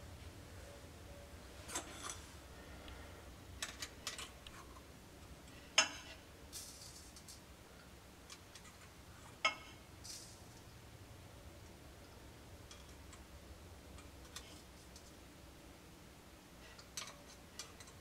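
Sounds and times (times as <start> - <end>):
faint low hum: 0.0 - 18.0.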